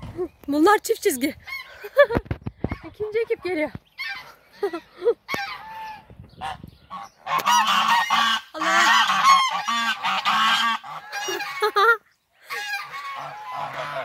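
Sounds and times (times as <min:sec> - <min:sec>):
geese honking: 0:04.0 - 0:14.0.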